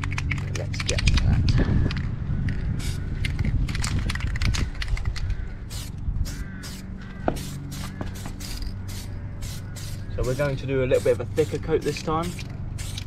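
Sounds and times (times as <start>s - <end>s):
steady low hum: 0.0s - 13.0s
spray paint can strokes: 2.8s - 3.4s, 5.7s - 13.0s.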